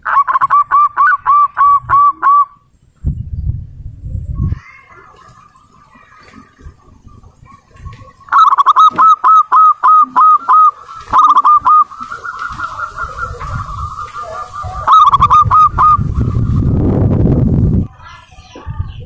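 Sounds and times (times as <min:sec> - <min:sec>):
dove cooing: 0:00.0 - 0:02.6, 0:04.7 - 0:17.2.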